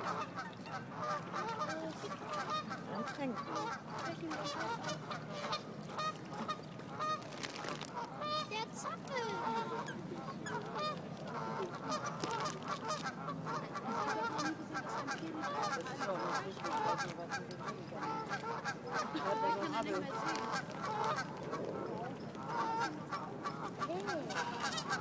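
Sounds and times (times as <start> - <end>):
waterbirds honking: 0.0 - 25.0.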